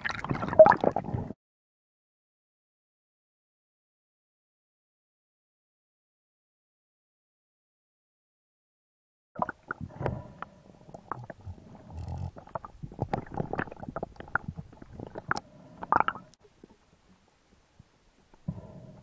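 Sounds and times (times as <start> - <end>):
gurgling bubbles: 0.0 - 1.4, 9.4 - 10.4, 11.0 - 16.8
muffled underwater knocks and clicks: 11.0 - 16.8.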